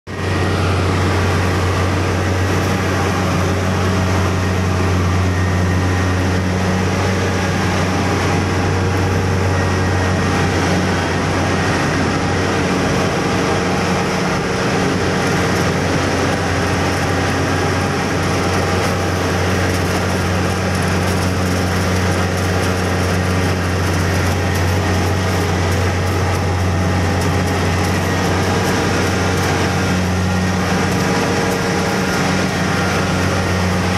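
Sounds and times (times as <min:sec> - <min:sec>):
cutter and threshing machinery: 0:00.1 - 0:33.9
diesel engine drone: 0:00.1 - 0:33.9.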